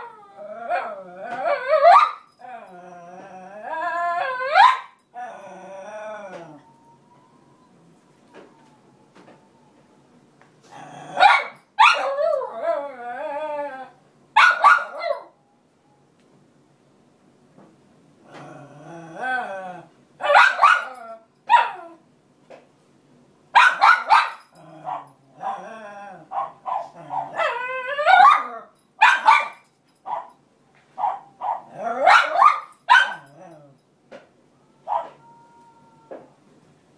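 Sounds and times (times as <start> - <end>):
dog whining: 0.0 - 10.0, 34.5 - 36.4
dog barking: 4.6 - 4.9, 11.2 - 12.1, 14.4 - 15.3, 20.2 - 21.8, 23.6 - 25.1, 26.3 - 27.5, 28.2 - 30.4, 31.0 - 33.3, 34.9 - 35.2.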